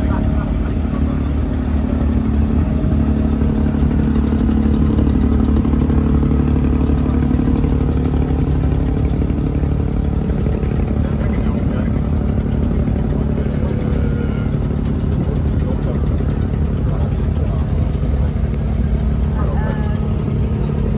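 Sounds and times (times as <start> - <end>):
boat engine droning: 0.0 - 20.9.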